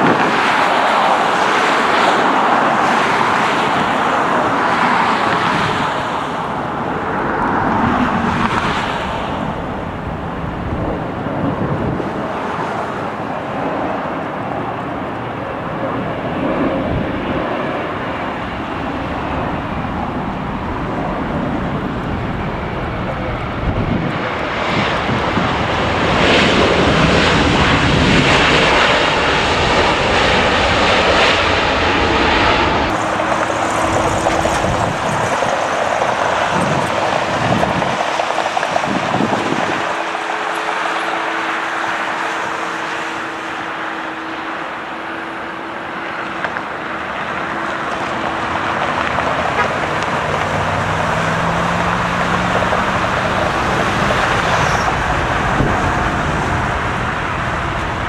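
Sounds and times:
jet engine roar: 0.0s - 58.0s
jet engine whine: 0.0s - 58.0s
low rising and falling tone: 6.4s - 13.7s, 14.4s - 24.9s, 26.0s - 37.4s, 49.3s - 58.0s.

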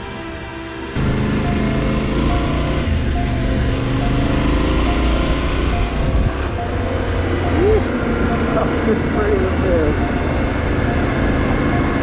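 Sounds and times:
motorcycle engine pulling: 1.0s - 9.6s
wind noise rushing: 5.2s - 9.2s.

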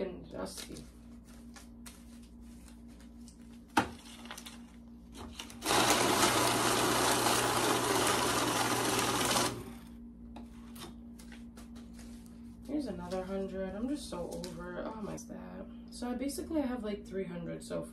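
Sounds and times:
bill-counting machine running: 5.6s - 9.8s.

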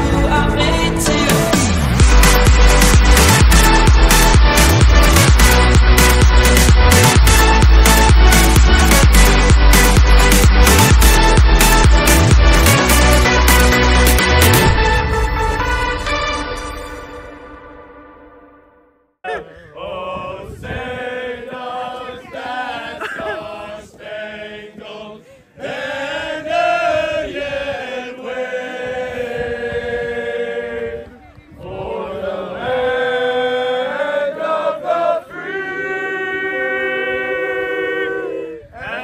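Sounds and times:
group singing in unison: 19.3s - 39.0s.

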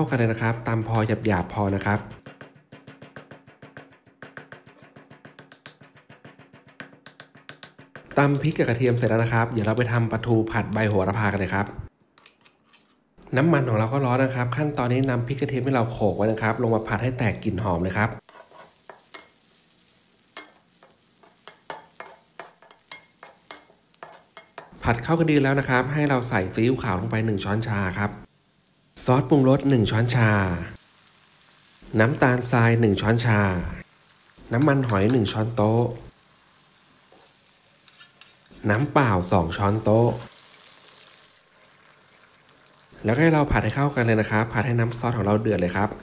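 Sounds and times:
faint sizzle of frying: 14.3s - 46.0s
metal spatula scraping a wok: 18.2s - 19.4s, 20.4s - 24.7s, 37.8s - 38.8s.

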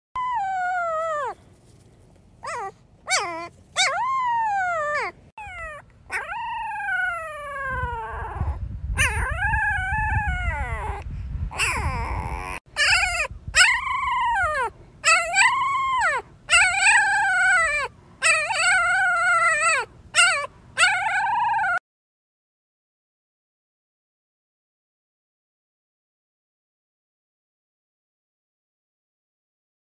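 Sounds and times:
dog howling and whining: 0.2s - 1.4s, 2.4s - 21.8s.

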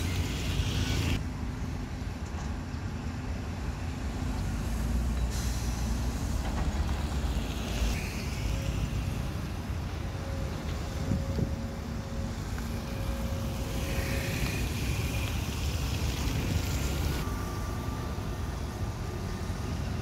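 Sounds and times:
concrete mixer truck driving: 0.0s - 20.0s
excavator diesel engine: 0.0s - 20.0s
passing traffic: 0.0s - 20.0s
high hiss: 12.4s - 18.1s.

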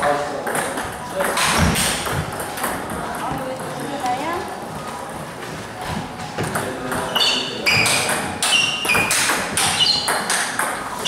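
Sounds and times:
ping pong ball hitting paddles: 0.4s - 4.0s, 6.3s - 11.0s.

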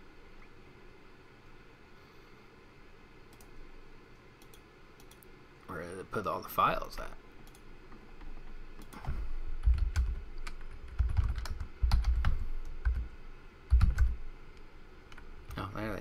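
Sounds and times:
typing on a keyboard: 8.8s - 13.1s, 13.7s - 14.2s.

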